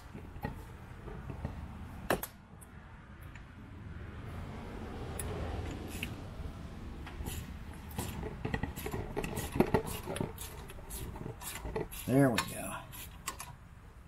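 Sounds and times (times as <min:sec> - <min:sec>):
low steady rumble: 0:00.0 - 0:14.0
metallic clicks and knocks: 0:07.9 - 0:12.6.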